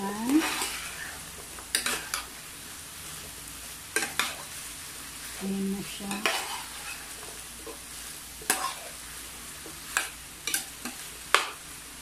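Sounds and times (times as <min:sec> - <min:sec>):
food sizzling in frying pan: 0:00.0 - 0:12.0
metal spoon scraping pan: 0:06.1 - 0:07.0, 0:08.5 - 0:08.9.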